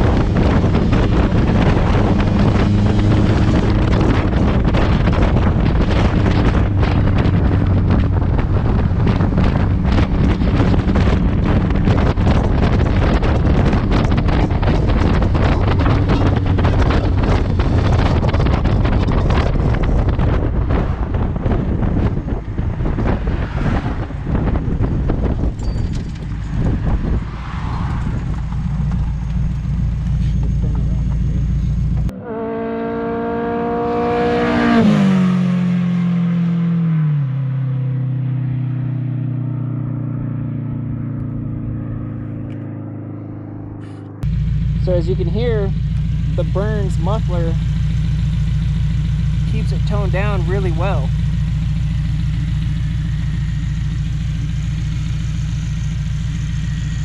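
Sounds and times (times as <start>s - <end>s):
wind buffeting microphone: 0.0s - 32.1s
car engine droning: 0.0s - 57.0s.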